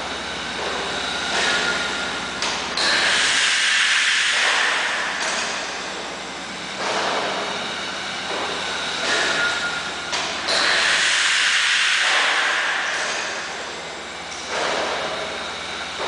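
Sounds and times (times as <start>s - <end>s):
pumping engine running: 0.0s - 16.0s
air hissing in surges: 2.8s - 6.0s, 6.8s - 13.8s.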